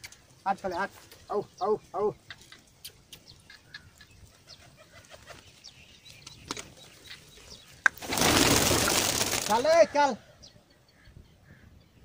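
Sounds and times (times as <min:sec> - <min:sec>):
pigeons pecking and shuffling: 0:03.8 - 0:09.7.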